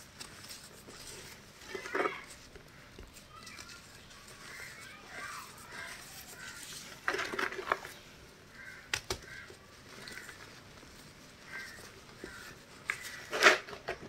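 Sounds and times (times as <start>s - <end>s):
chalk crunching in hands: 3.2s - 7.1s.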